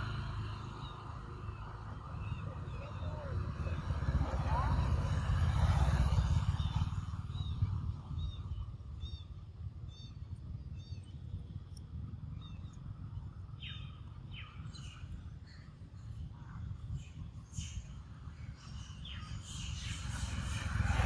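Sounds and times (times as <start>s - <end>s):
steady low rumble: 0.0s - 21.0s
bird chirping: 12.2s - 21.0s.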